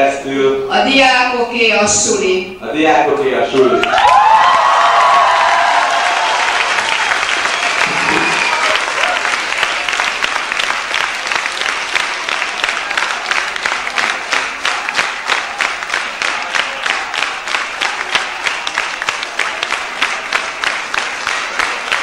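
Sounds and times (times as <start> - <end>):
crowd applauding: 3.6 - 22.0
rhythmic clapping in unison: 5.0 - 22.0.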